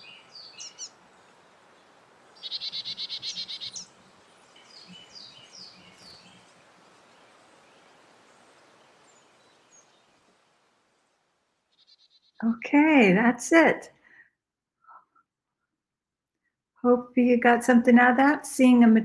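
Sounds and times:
songbird trilling: 0.0s - 1.0s, 2.4s - 3.9s, 11.8s - 12.4s
outdoor background noise: 0.0s - 19.0s.

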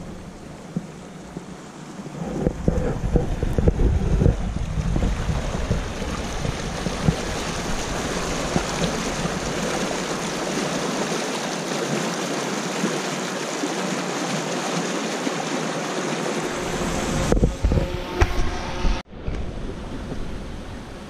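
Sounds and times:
stream rushing over rapids: 0.0s - 19.0s.

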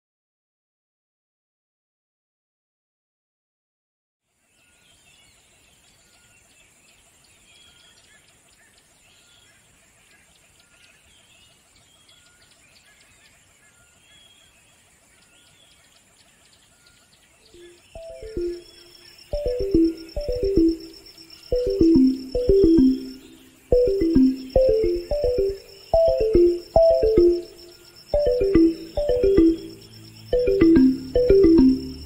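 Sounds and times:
birds chirping: 4.6s - 32.0s
steady high hiss: 17.6s - 32.0s
plucked music notes: 18.0s - 18.6s, 19.4s - 20.9s, 21.5s - 27.6s, 28.2s - 32.0s.

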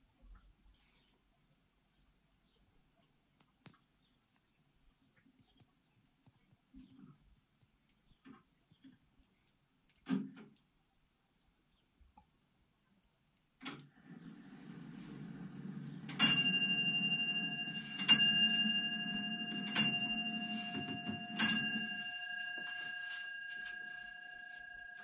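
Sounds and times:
clock bell striking: 16.1s - 25.0s.

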